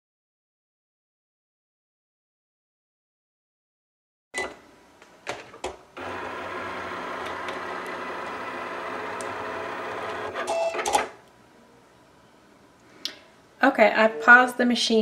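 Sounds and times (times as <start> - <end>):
cutting machine motors whirring: 6.0 - 11.0.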